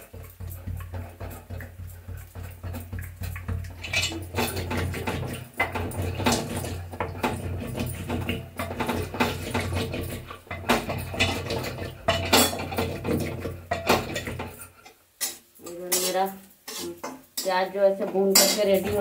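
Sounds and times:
wooden churner knocking in pot: 0.0s - 14.7s, 18.3s - 19.0s.

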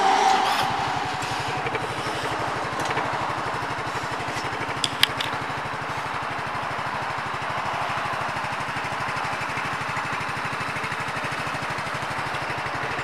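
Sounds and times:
small engine idling: 0.0s - 13.0s
sharp clicks: 1.1s - 5.6s.

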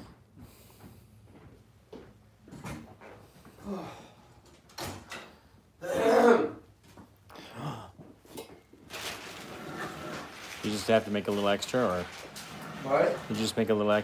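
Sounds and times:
breathy vocal sounds: 7.3s - 8.0s.

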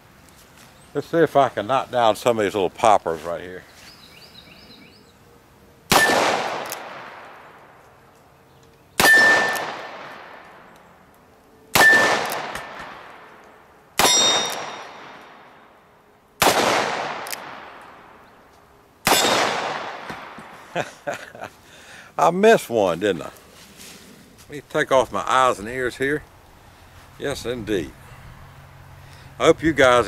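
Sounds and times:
steel targets ringing: 9.0s - 9.8s, 11.7s - 13.3s, 14.0s - 15.2s
revolver shots: 9.0s - 10.6s.

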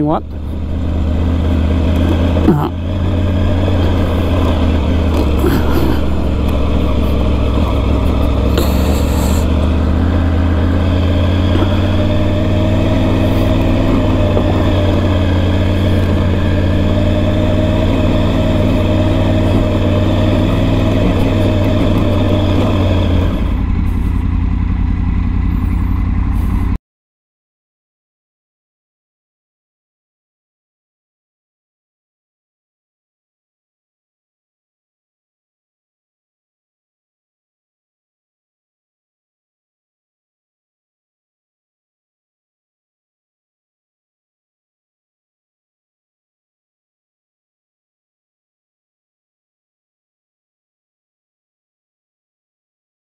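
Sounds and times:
motorcycle engine running: 0.0s - 26.8s.

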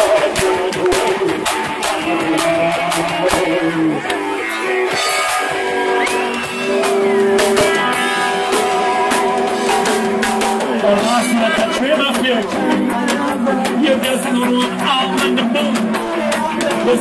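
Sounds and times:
drum kit hits: 0.0s - 17.0s
live rock band playing: 0.0s - 17.0s
bending high guitar note: 3.3s - 12.1s.

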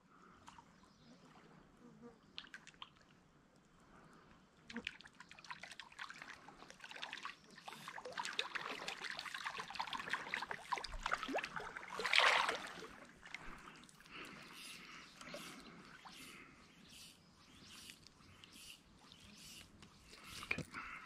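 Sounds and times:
fish splashing in water: 4.8s - 14.4s
hand splashing into creek: 7.8s - 13.9s.

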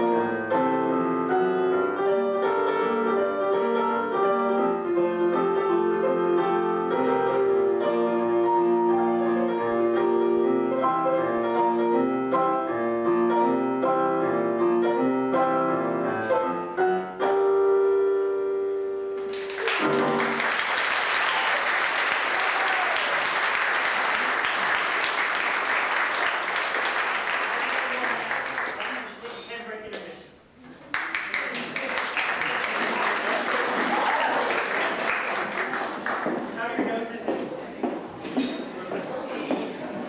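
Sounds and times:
piano music on keyboard: 0.0s - 20.7s
audience applause: 19.2s - 29.2s, 30.9s - 36.8s.

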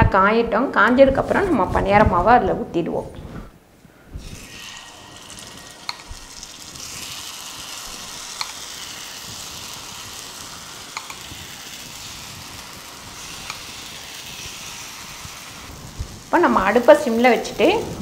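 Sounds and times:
batter sizzling in hot oil: 4.2s - 18.0s.

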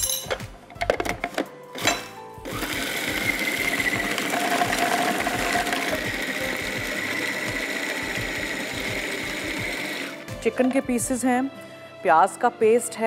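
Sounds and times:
glass bowls clinking: 0.0s - 0.4s
food processor grinding: 1.8s - 10.2s.

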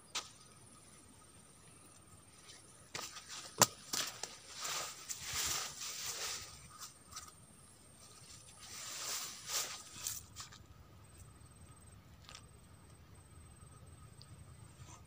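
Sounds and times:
faint insect drone: 0.0s - 15.0s
rustling and scraping handling noise: 2.4s - 7.4s, 8.0s - 10.7s.

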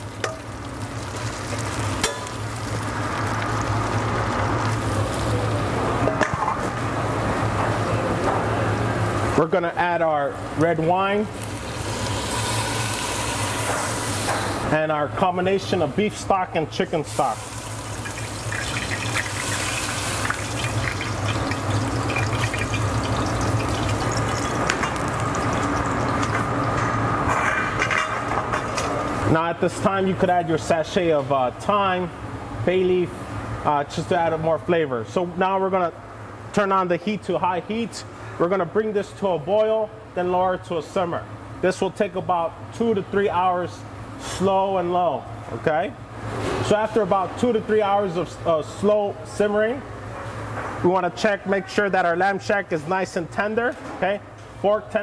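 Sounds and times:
vegetables sizzling in pot: 0.0s - 5.7s, 11.3s - 14.6s, 17.1s - 27.0s
liquid splashing into a pot: 17.4s - 26.6s.

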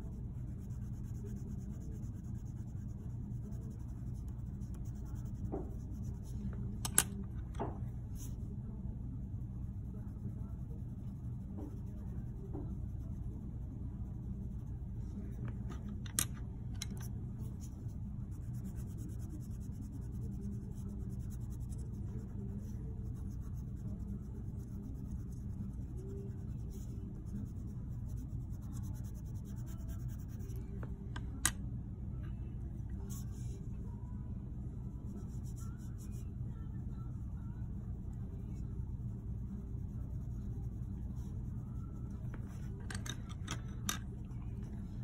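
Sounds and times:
pencils scratching on paper: 0.0s - 6.5s, 17.4s - 30.7s
steady low hum: 0.0s - 45.0s.

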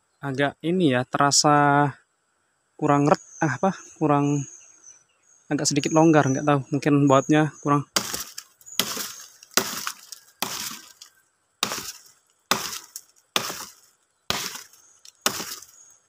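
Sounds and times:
axe chopping into tree trunk: 8.0s - 15.8s.

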